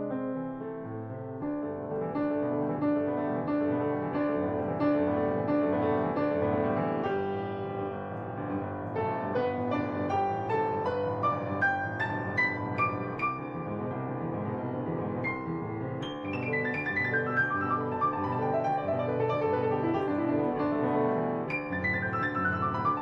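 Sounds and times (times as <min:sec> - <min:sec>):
piano music: 0:00.0 - 0:23.0.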